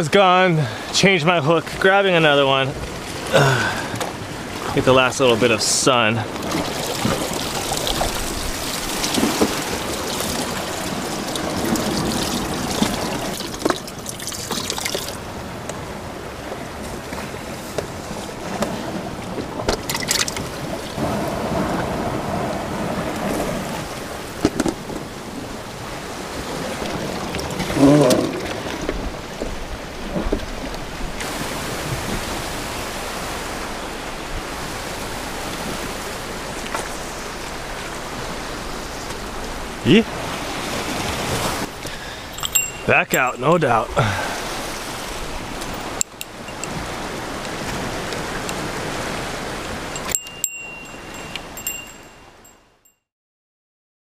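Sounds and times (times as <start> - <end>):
shore waves: 0.0 - 53.0
wind on microphone: 15.2 - 52.5
water sloshing in plastic bucket: 19.6 - 20.8.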